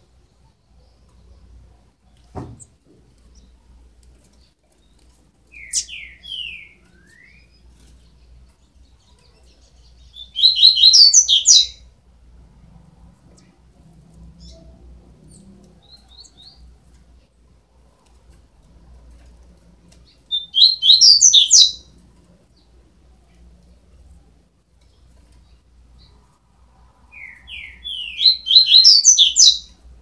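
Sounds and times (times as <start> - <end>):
bird chicks chirping: 4.2 - 11.9, 27.1 - 29.8.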